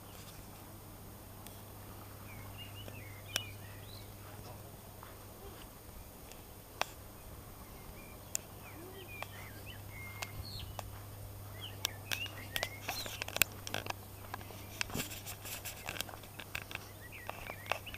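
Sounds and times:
small birds chirping: 0:00.0 - 0:17.9
sharp clicks: 0:08.2 - 0:17.9.

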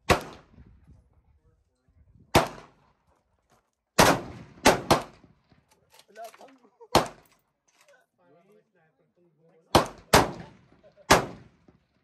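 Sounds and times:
rifle shots: 0:00.0 - 0:00.5, 0:02.3 - 0:02.8, 0:04.0 - 0:05.3, 0:06.9 - 0:07.3, 0:09.7 - 0:11.6.

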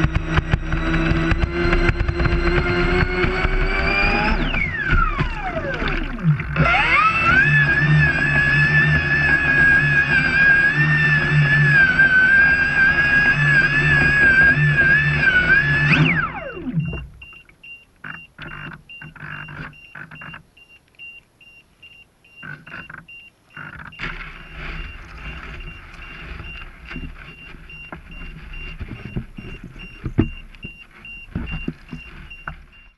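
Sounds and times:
electric motor whining: 0:00.0 - 0:17.2, 0:22.4 - 0:32.9
faint high beep: 0:16.7 - 0:26.7, 0:27.3 - 0:32.9.

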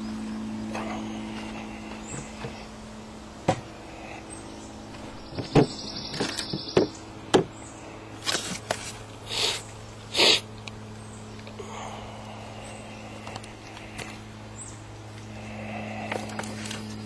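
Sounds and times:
steady low hum: 0:00.0 - 0:17.0
sharp knocks and clicks: 0:05.3 - 0:07.5.

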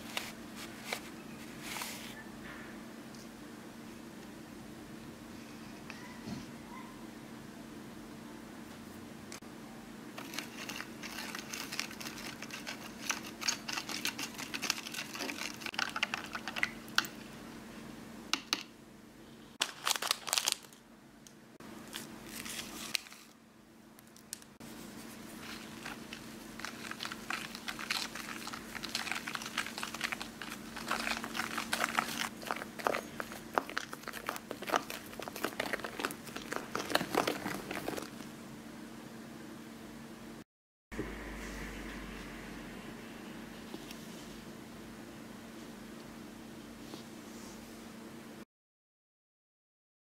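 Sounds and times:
low steady hum: 0:00.0 - 0:40.4, 0:41.0 - 0:48.4
plastic packet crinkling: 0:10.2 - 0:17.1, 0:19.6 - 0:20.8, 0:21.8 - 0:23.4, 0:25.3 - 0:38.2.

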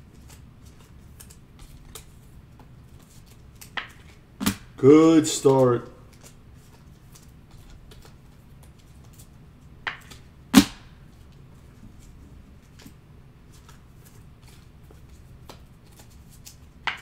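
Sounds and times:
cards clicking: 0:00.2 - 0:02.1.

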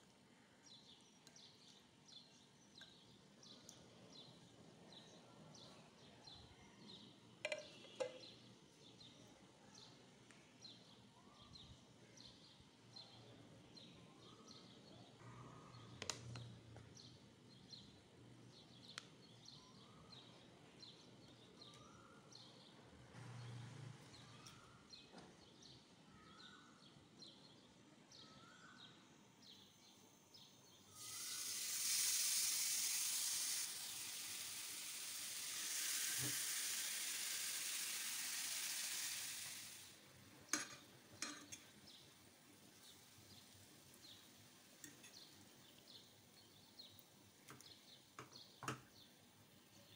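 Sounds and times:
chicken sizzling in a frying pan: 0:30.9 - 0:48.9.

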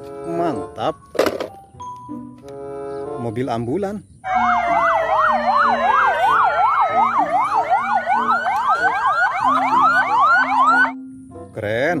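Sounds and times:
ambulance sirens: 0:04.2 - 0:11.0.

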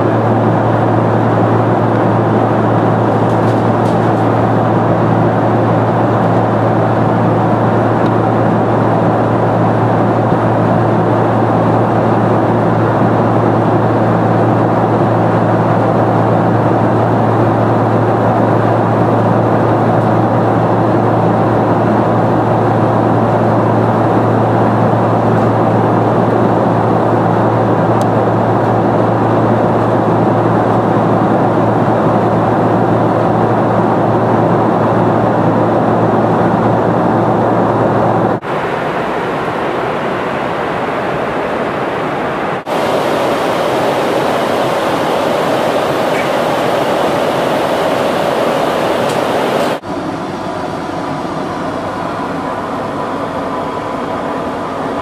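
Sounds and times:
airplane cabin noise: 0:00.0 - 0:55.0.

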